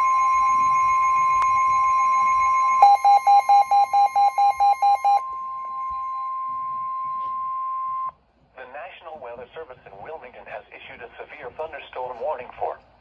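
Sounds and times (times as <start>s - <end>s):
rapid beeping: 0.0s - 7.1s
steady high warning tone: 0.0s - 8.1s.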